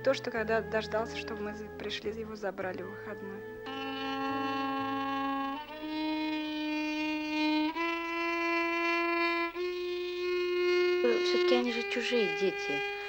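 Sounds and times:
solo violin long bowed notes: 0:00.0 - 0:13.0.

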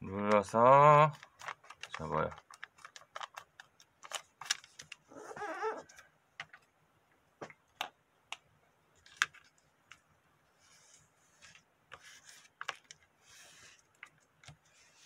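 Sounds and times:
paper taps and crinkles: 0:00.2 - 0:05.1, 0:07.4 - 0:10.1, 0:11.4 - 0:15.0.

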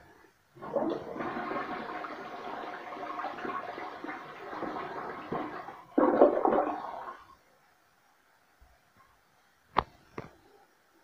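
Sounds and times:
toilet flushing: 0:00.6 - 0:07.4.

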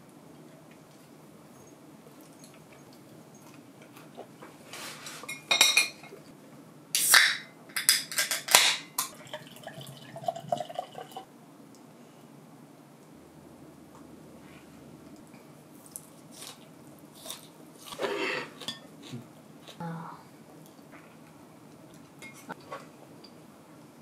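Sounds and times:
beer pouring into mug: 0:09.0 - 0:11.3.

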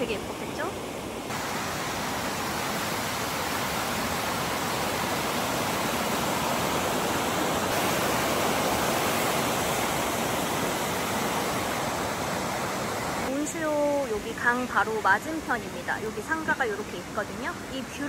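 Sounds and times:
river water flowing: 0:00.0 - 0:18.0.

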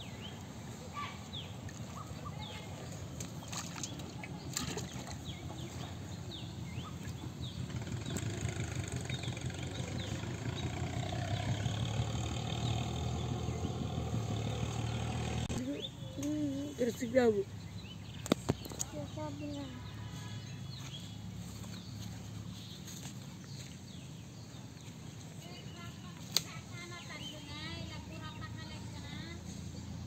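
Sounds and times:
small birds chirping: 0:00.0 - 0:30.0
low engine drone: 0:04.2 - 0:15.9.

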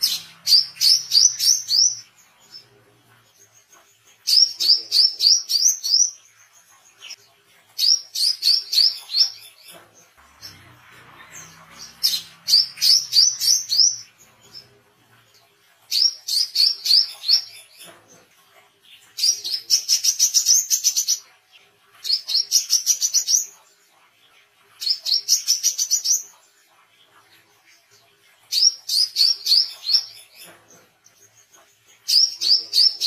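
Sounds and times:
bird chirping rapidly: 0:00.0 - 0:02.7, 0:07.8 - 0:14.8.

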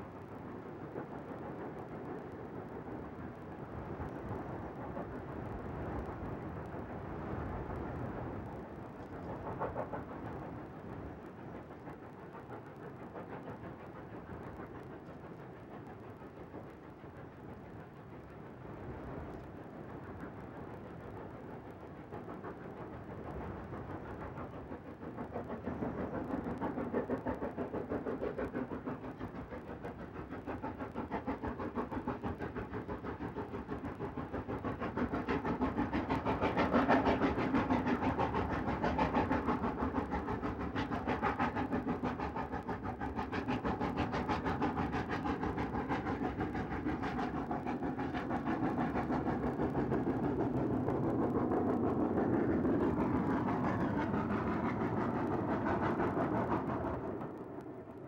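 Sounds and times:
steam locomotive exhaust beats: 0:00.0 - 0:58.0.

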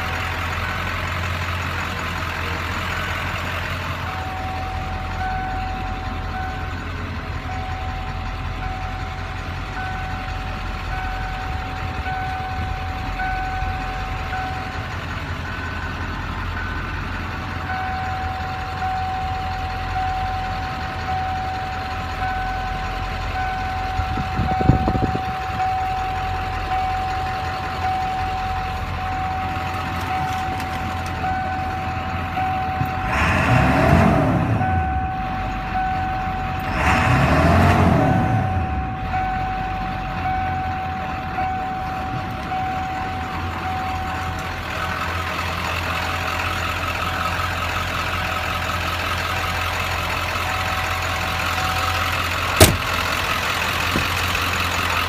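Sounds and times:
diesel engine idling: 0:00.0 - 0:55.0
dashboard warning chime beeping: 0:04.0 - 0:14.9, 0:17.6 - 0:33.1, 0:34.6 - 0:36.8, 0:38.4 - 0:44.5, 0:52.6 - 0:53.0
thump: 0:52.6 - 0:52.9.

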